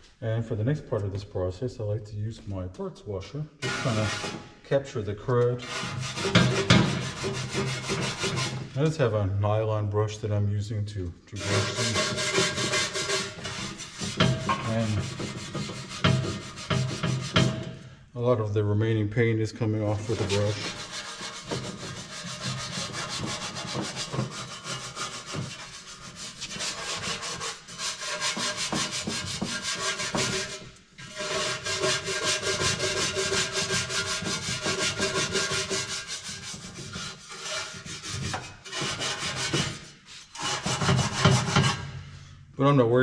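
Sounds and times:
brush scrubbing metal: 0:03.6 - 0:04.4, 0:05.6 - 0:08.8, 0:11.4 - 0:17.7, 0:19.8 - 0:41.9.

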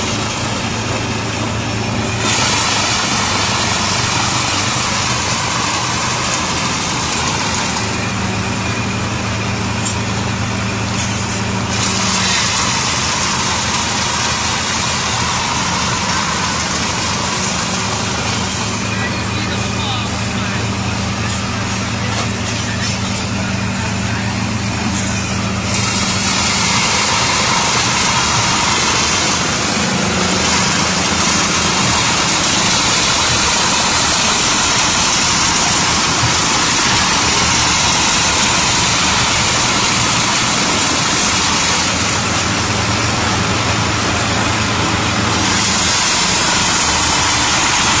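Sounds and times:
tractor engine running: 0:00.0 - 0:48.0
chaff cutter chopping grass: 0:24.9 - 0:48.0.

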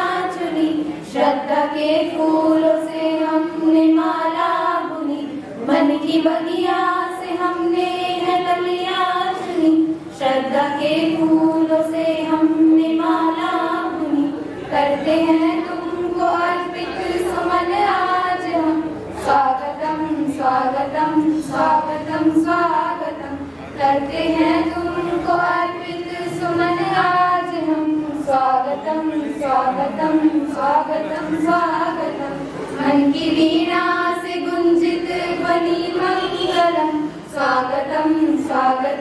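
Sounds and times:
girls singing together: 0:00.0 - 0:39.0.

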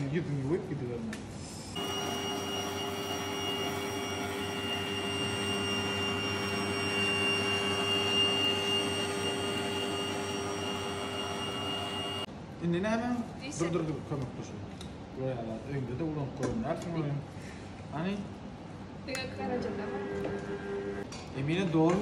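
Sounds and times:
stand mixer motor whine: 0:01.8 - 0:12.3, 0:19.8 - 0:21.0.

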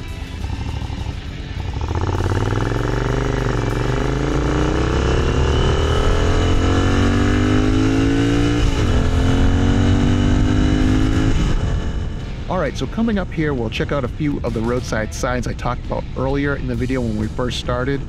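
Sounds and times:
motorcycle engine accelerating: 0:00.0 - 0:15.5.

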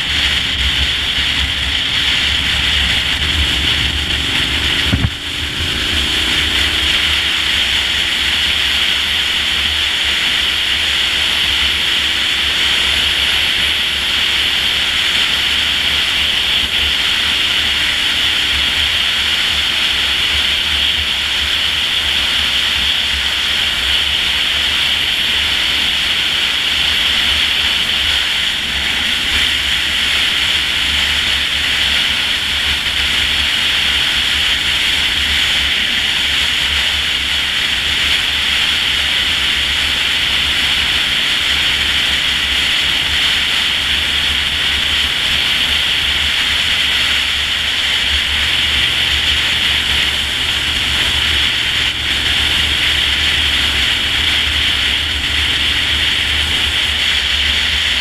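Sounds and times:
low motorcycle rumble: 0:00.0 - 0:58.0
wind rushing over camera: 0:00.1 - 0:09.4.

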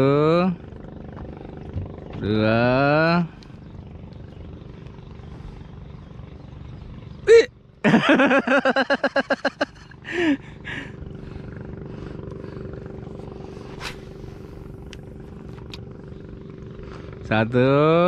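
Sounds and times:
low engine hum: 0:00.0 - 0:18.0
man shouting: 0:07.3 - 0:07.5
man laughing loudly: 0:07.3 - 0:11.0.

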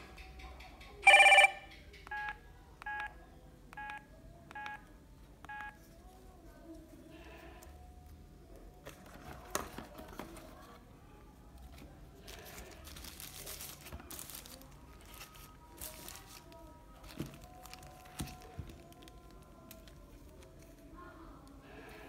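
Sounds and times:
paper crinkling and rustling: 0:08.8 - 0:10.8, 0:11.6 - 0:20.8.

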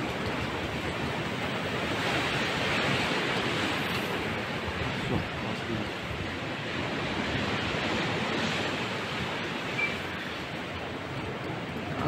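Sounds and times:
sea surf breaking: 0:00.0 - 0:12.0.

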